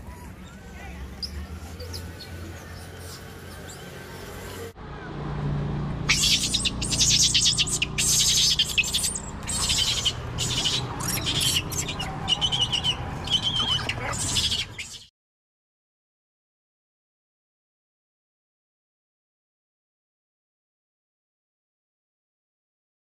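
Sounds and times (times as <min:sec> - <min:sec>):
high-pitched chirping and squeaks: 0:06.1 - 0:15.1
short held calls: 0:06.1 - 0:15.1.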